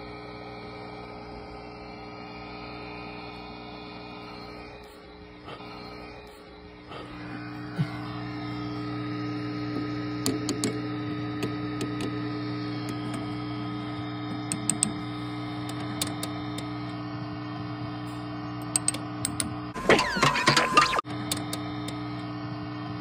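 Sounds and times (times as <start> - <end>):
guitar amp mains hum: 0.0 - 23.0
sharp ticks: 14.4 - 15.0, 18.6 - 19.5.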